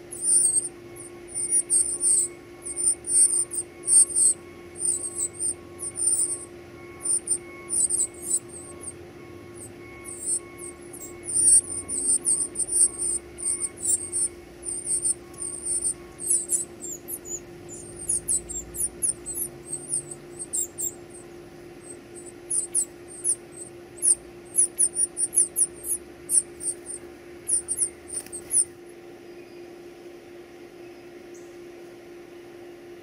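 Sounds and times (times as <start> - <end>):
nestlings peeping: 0.0 - 29.6
faint low hum: 0.0 - 33.0.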